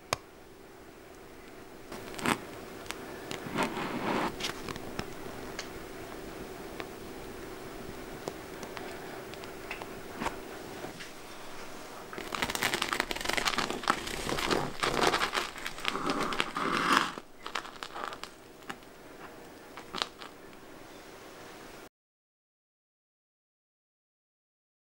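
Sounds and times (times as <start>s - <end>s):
knife crunching through sugar crust: 1.9s - 5.6s, 8.2s - 20.7s.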